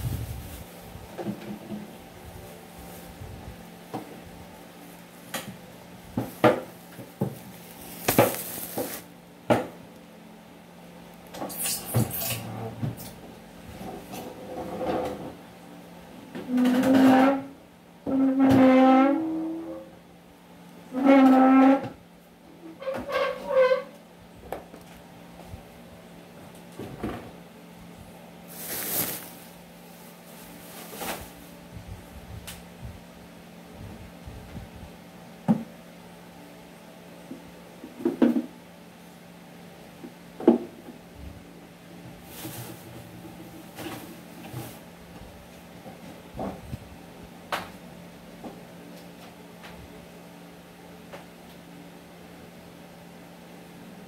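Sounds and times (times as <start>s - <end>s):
rustling swish: 0.0s - 0.9s, 28.5s - 31.4s
steady low hum: 0.0s - 16.5s, 23.9s - 54.0s.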